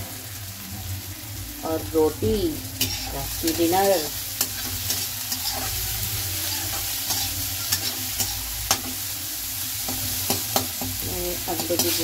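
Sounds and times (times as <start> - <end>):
vegetables sizzling in oil: 0.0 - 12.0
spatula tapping and scraping pan: 9.9 - 12.0.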